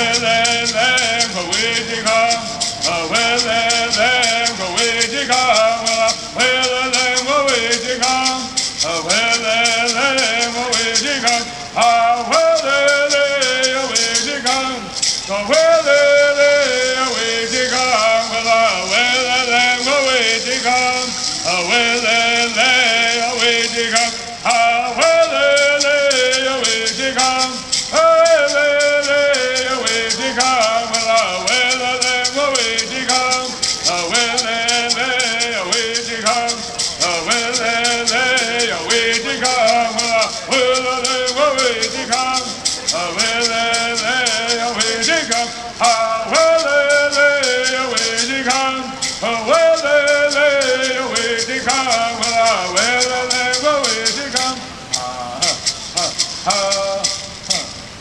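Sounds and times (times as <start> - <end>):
gourd rattles shaken: 0.0 - 58.0
voices singing in unison: 0.0 - 58.0.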